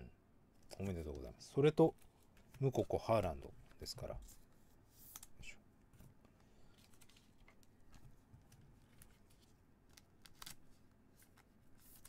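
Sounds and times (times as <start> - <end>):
soft clicks and rustles: 3.6 - 12.0.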